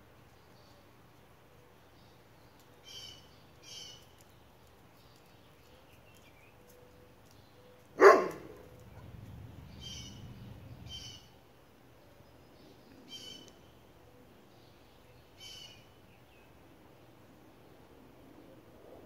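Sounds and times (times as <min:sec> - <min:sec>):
loud dog bark: 0:08.0 - 0:08.7.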